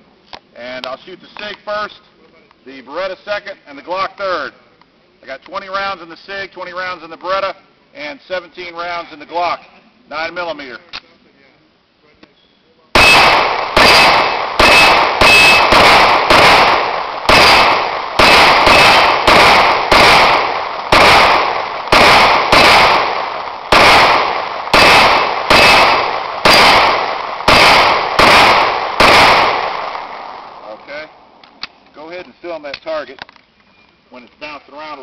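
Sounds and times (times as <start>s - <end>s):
pistol shots: 13.0s - 30.7s.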